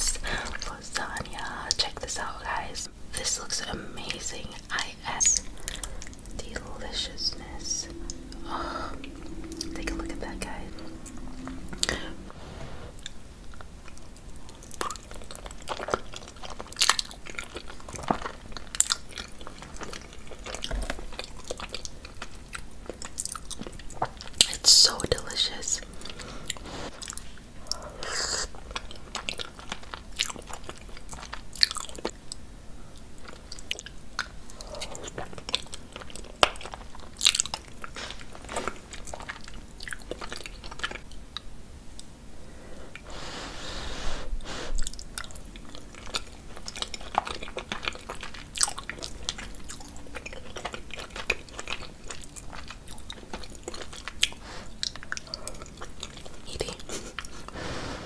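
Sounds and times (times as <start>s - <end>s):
chewing and biting food: 13.0s - 24.6s, 28.5s - 42.1s, 44.8s - 57.6s.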